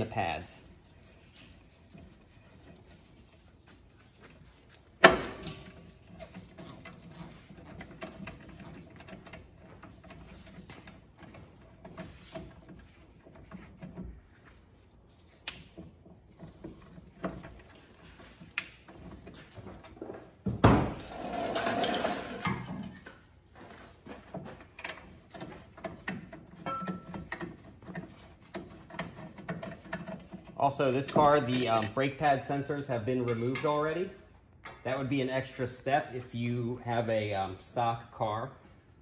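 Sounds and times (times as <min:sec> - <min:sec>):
metal caliper clattering: 0:24.9 - 0:32.0.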